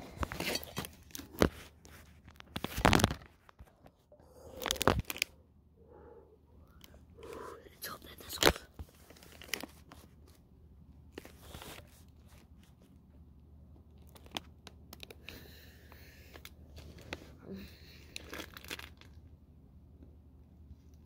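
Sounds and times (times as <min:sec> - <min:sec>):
plastic pouch crinkling: 0:00.2 - 0:03.8, 0:04.4 - 0:05.3, 0:08.2 - 0:10.4, 0:14.0 - 0:15.2, 0:18.0 - 0:19.2.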